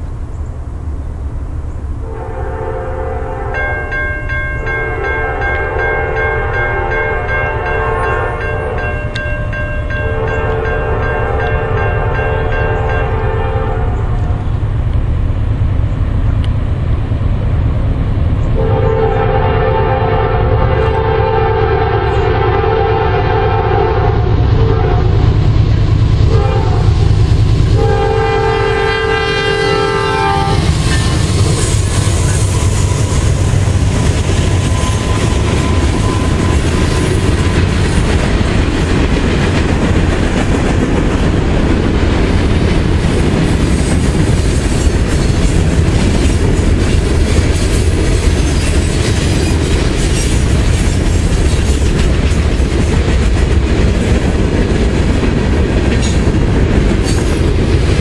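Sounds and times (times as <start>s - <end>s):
train rumbling past: 0.0s - 58.0s
train horn blast: 2.0s - 4.0s, 4.8s - 8.9s, 10.0s - 14.5s, 18.6s - 25.4s, 26.2s - 34.0s
wheels clacking over rail joints: 27.2s - 58.0s.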